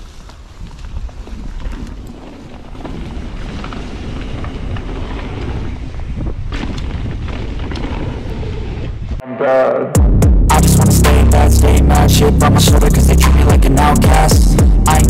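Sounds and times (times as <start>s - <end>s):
bike clicks and rattles: 0.0s - 8.3s
bike tyre noise on dirt: 0.0s - 9.2s
wind rushing over microphone: 0.0s - 9.2s.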